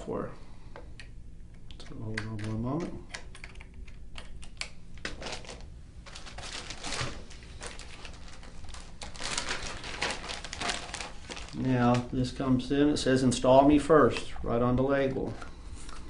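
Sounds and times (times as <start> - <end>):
plastic packaging crinkling: 4.4 - 12.4.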